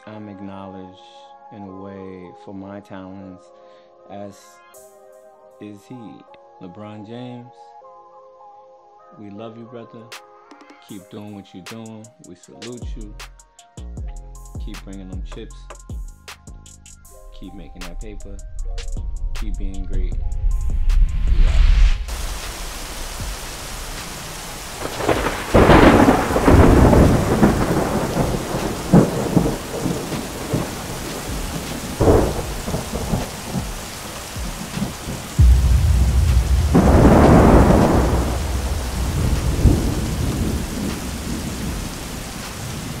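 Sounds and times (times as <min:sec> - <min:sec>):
rolling thunder: 0:18.2 - 0:43.0
steady rain: 0:22.0 - 0:43.0.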